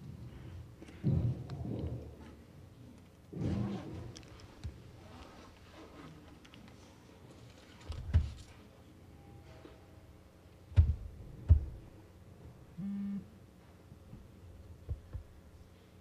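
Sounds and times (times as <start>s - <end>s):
microphone handling thumps: 10.7s - 11.9s.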